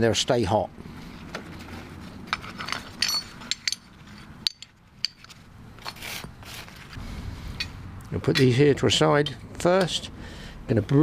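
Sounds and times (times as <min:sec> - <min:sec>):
light metallic clinks: 0:02.7 - 0:05.3.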